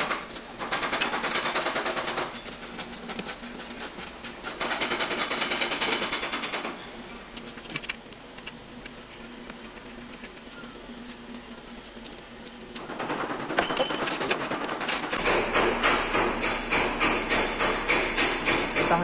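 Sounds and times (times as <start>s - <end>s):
rapid mechanical clicking: 0.0s - 6.8s, 7.4s - 19.0s
scattered clicks and knocks: 0.0s - 6.8s, 11.3s - 19.0s.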